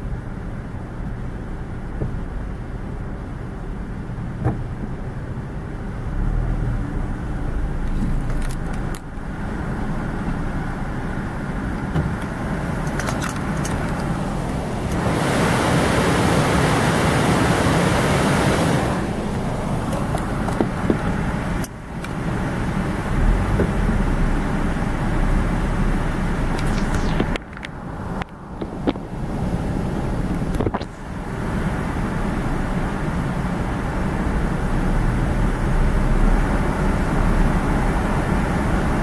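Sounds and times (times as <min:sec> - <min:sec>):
car engine rumble inside cabin: 0:00.0 - 0:39.0
faint rattles and clicks: 0:11.8 - 0:14.2.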